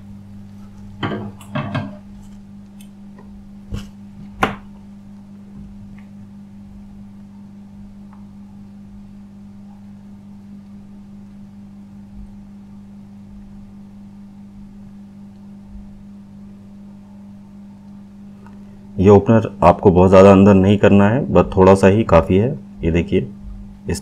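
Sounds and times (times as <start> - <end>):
low electrical hum: 0.0 - 24.0
knocks of tools on workbench: 1.0 - 2.0.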